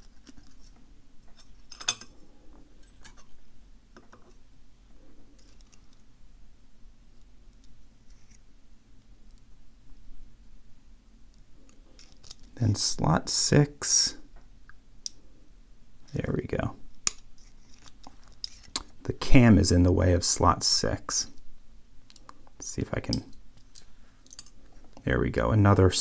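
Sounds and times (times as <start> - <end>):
metallic clicks and scratches of tweezers: 7.5 - 8.4, 17.1 - 18.9.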